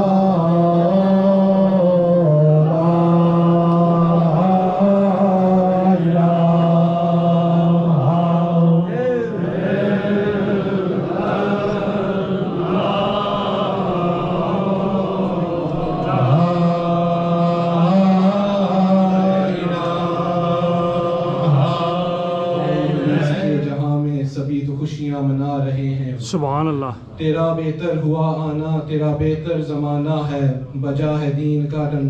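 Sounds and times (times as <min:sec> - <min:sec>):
man chanting: 0:00.0 - 0:09.0, 0:16.1 - 0:22.4, 0:23.0 - 0:32.0.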